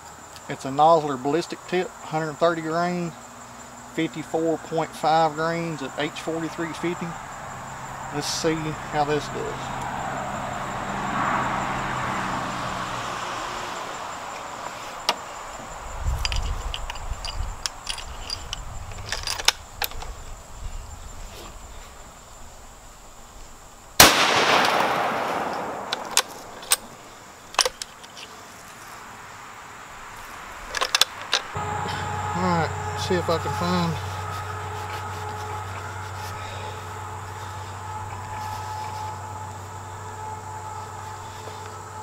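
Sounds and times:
rifle shot: 24.0 - 26.7.

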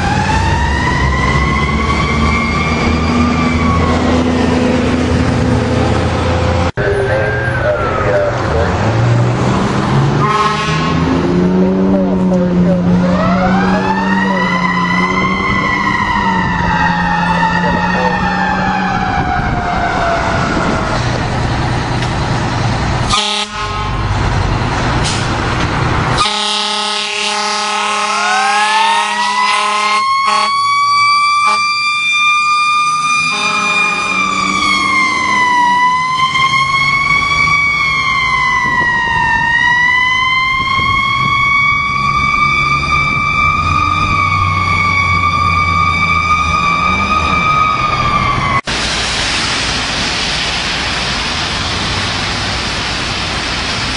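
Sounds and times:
siren rising and falling: 0.0 - 22.0, 26.1 - 48.7
air horn blast: 10.2 - 11.2, 23.1 - 24.1, 26.2 - 30.6, 31.4 - 31.7, 33.2 - 34.8.

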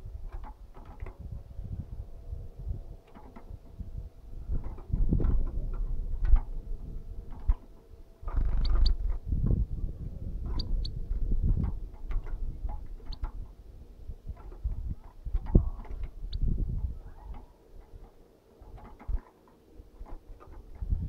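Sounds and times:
bird knocking and scratching in cage: 3.1 - 3.5, 11.5 - 13.4, 18.6 - 19.3
high bird chirps: 8.3 - 9.0.

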